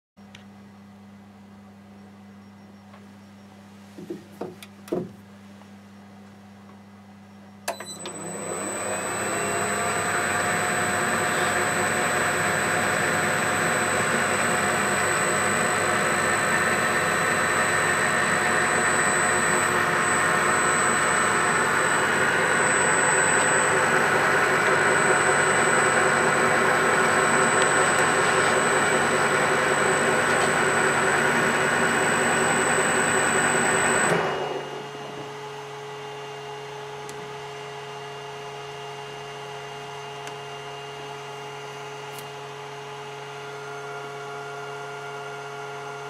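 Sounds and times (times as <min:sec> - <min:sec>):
lathe running: 0:08.1 - 0:35.4.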